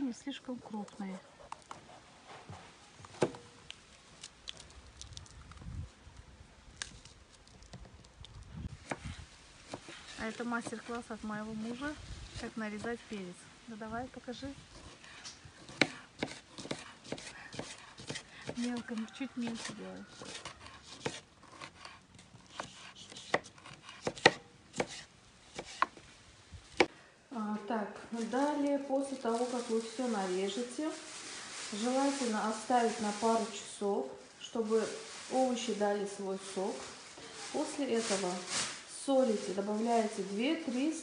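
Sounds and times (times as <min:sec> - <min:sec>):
knife chopping on board: 0:15.7 - 0:18.7, 0:22.5 - 0:26.0.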